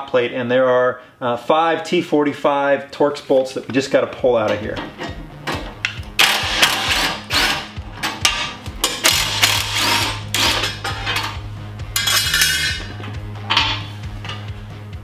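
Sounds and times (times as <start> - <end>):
impact driver bursts: 6.2 - 7.7.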